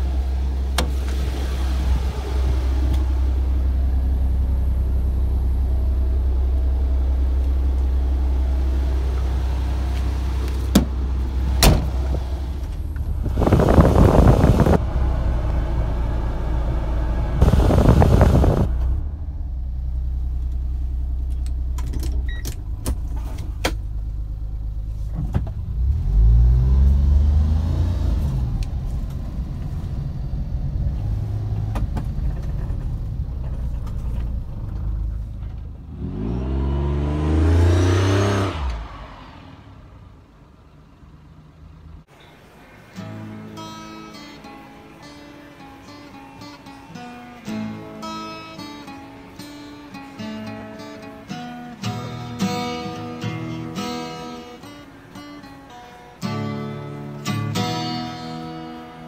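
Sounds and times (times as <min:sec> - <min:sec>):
van engine idling and revving: 0:00.0 - 0:42.2, 0:47.0 - 0:59.0
short rushes of noise: 0:17.1 - 0:19.1.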